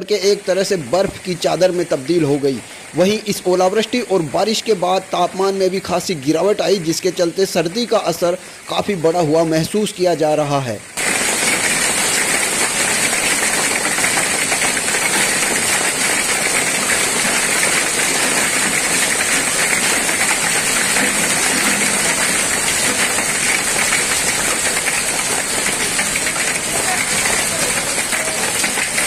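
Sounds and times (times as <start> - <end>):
hail and rain falling: 0.0 - 29.0.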